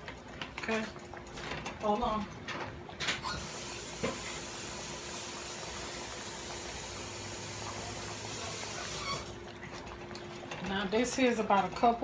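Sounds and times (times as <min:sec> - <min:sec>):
tap water running into cup: 0:03.3 - 0:10.3.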